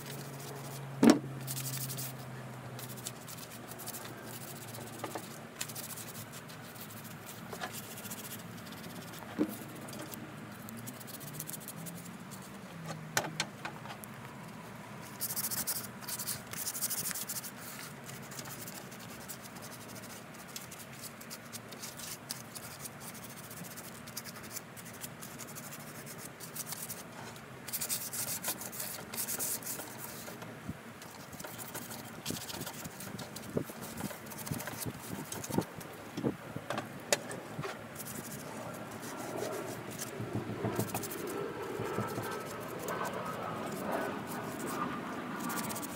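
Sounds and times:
sanding sponge rubbing wood: 31.1s - 35.7s, 38.0s - 44.8s, 45.4s - 45.9s.

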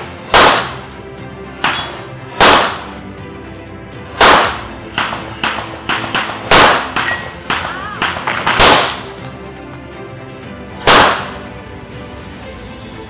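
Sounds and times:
pistol shots: 0.3s - 0.9s, 1.6s - 3.0s, 4.2s - 9.2s, 10.8s - 11.5s.

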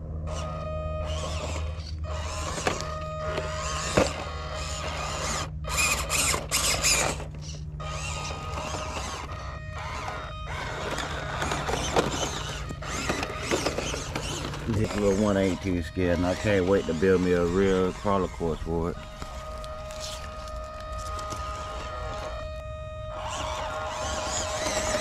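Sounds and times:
small electric motor whining: 0.0s - 25.0s.

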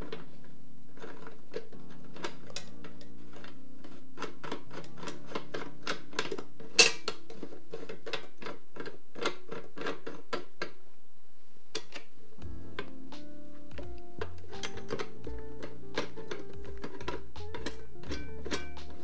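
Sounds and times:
sharp metal clack: 6.8s - 7.1s.

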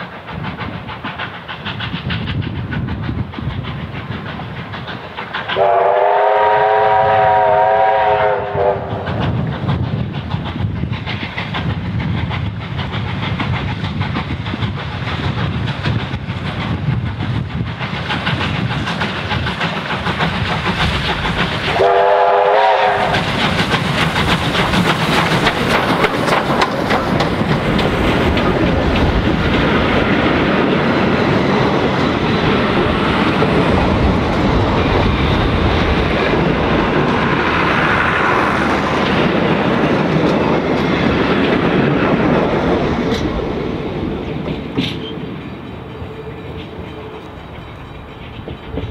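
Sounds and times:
steam exhaust beating: 0.0s - 48.9s
train wheels clattering on rails: 0.0s - 48.9s
steam locomotive whistle: 5.6s - 9.1s, 21.7s - 23.4s.

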